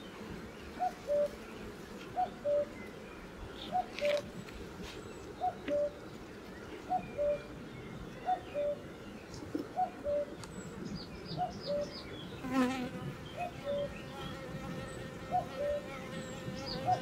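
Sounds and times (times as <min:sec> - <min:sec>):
honey bees buzzing: 0:00.0 - 0:07.6, 0:12.3 - 0:17.0.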